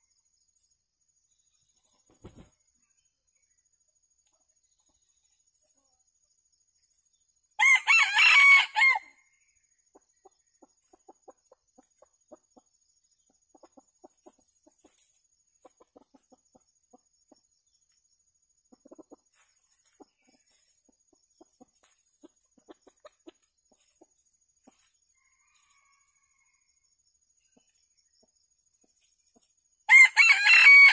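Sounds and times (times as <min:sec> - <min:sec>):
rooster crowing: 0:07.6 - 0:09.2, 0:25.2 - 0:26.8, 0:29.9 - 0:30.9
soft clucking: 0:13.3 - 0:17.4, 0:18.7 - 0:24.9.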